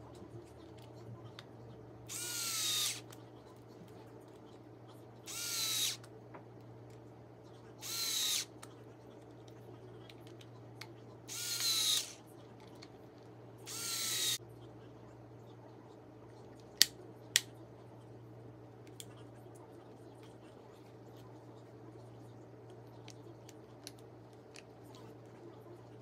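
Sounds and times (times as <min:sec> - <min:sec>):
impact driver motor whining: 0:02.1 - 0:03.0, 0:05.3 - 0:06.0, 0:07.8 - 0:08.5, 0:11.3 - 0:12.2, 0:13.7 - 0:14.4.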